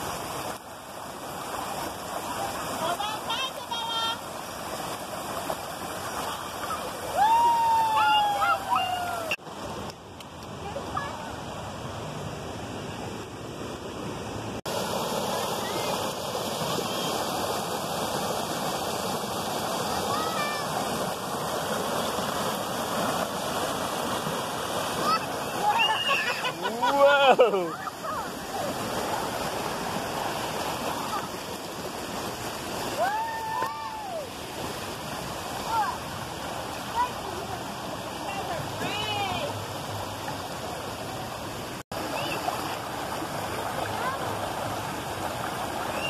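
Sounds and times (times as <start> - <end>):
river water rushing over rocks: 0.0 - 46.0
child yelling: 6.6 - 9.4, 20.1 - 20.7, 25.0 - 26.6.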